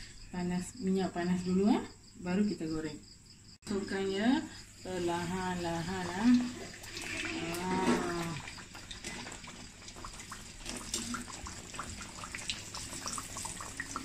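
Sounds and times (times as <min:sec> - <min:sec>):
oil sizzling and popping: 0:05.0 - 0:14.0.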